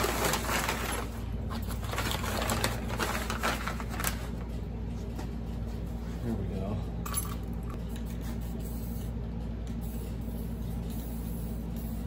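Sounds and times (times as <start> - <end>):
paper sheet crinkling: 0.0 - 4.4.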